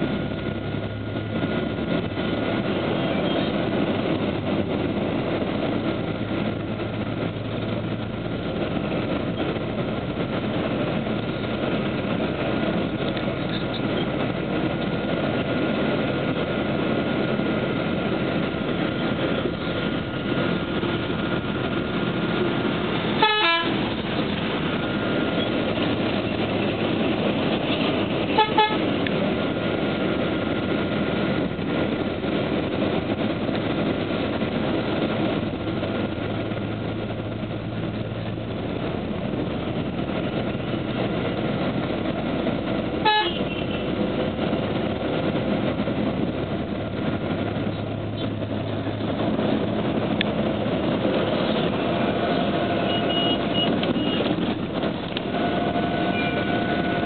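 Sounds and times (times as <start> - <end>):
street traffic: 0.0 - 57.0
vehicle horns honking: 23.2 - 23.8, 28.3 - 28.9, 43.0 - 43.9, 52.6 - 54.3, 55.3 - 57.0.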